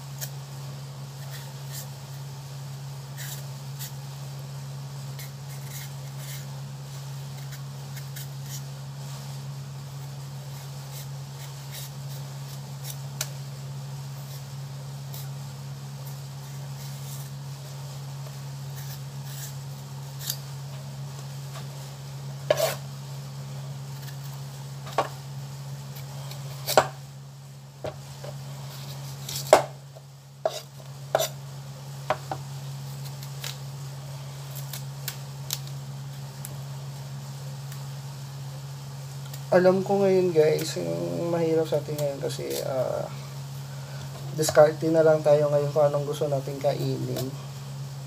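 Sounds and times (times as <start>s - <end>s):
knife scraping and tapping: 22.4s - 22.8s, 30.4s - 31.4s.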